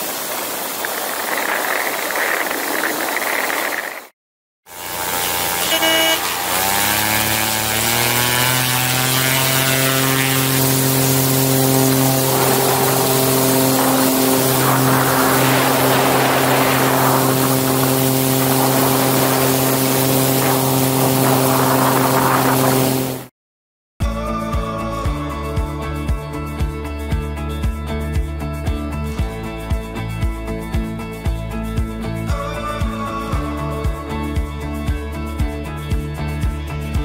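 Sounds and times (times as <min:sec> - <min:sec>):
plane engine and propeller: 0:00.0 - 0:04.1, 0:04.7 - 0:23.3
rushing wind: 0:00.0 - 0:04.1, 0:06.2 - 0:23.3.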